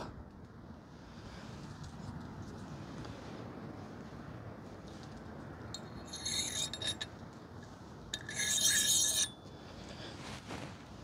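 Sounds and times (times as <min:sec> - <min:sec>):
rasping scrubbing of metal parts: 0:05.8 - 0:07.2, 0:08.1 - 0:09.4.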